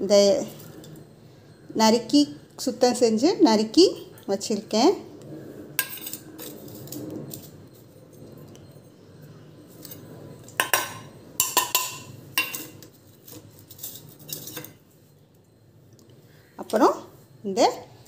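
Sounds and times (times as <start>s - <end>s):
metal spoon scraping saucepan: 5.4s - 15.3s.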